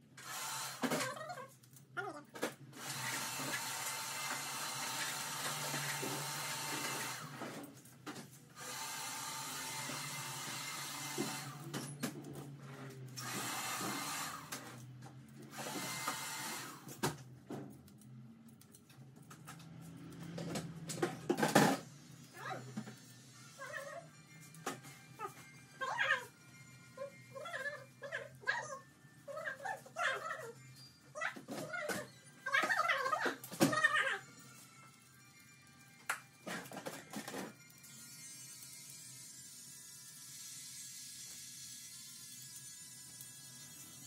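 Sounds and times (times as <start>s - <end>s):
small electric motor running: 0.1s - 1.3s, 2.8s - 7.4s, 8.6s - 11.8s, 13.0s - 17.0s, 37.6s - 44.0s.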